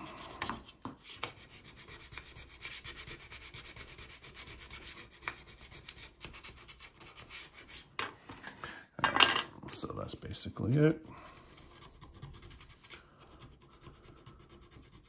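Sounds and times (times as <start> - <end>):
sandpaper rubbing on plastic: 0.0 - 7.9, 11.4 - 15.0.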